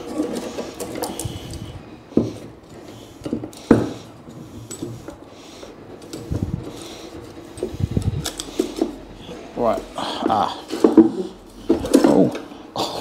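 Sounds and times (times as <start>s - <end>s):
hands rustling electrical cables: 0.0s - 13.0s.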